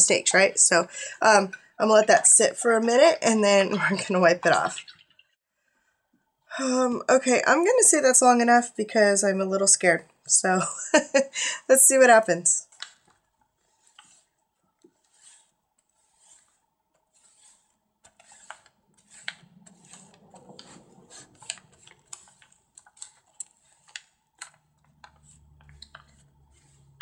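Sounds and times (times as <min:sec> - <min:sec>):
paper crinkles and ticks: 0:12.6 - 0:27.0
paper towel wiping page: 0:12.7 - 0:27.0.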